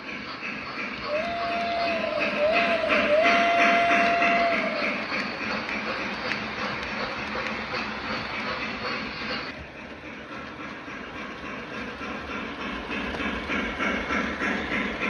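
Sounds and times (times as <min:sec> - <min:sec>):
model train wheels rumbling on rails: 0:00.0 - 0:15.0
train whistle: 0:01.0 - 0:05.4.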